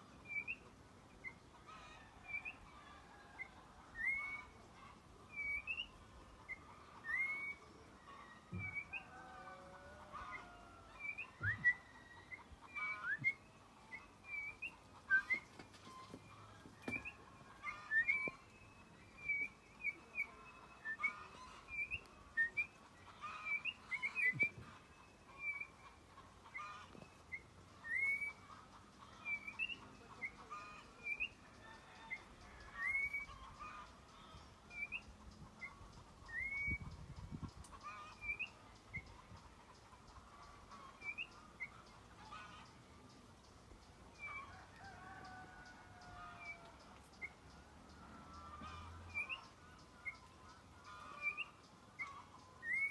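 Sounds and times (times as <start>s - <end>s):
oriole whistled chirps: 5.4s - 5.9s, 6.5s - 7.6s, 8.6s - 9.1s, 11.0s - 15.5s, 27.8s - 28.4s, 32.8s - 33.4s, 35.6s - 36.9s, 51.2s - 52.9s.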